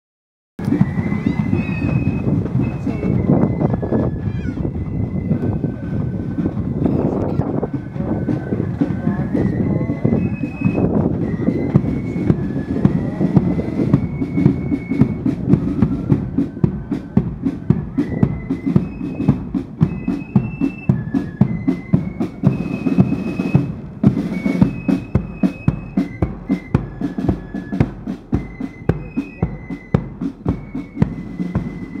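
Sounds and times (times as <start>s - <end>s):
flutes playing melody: 0.6s - 32.0s
snare drum beats: 10.2s - 32.0s.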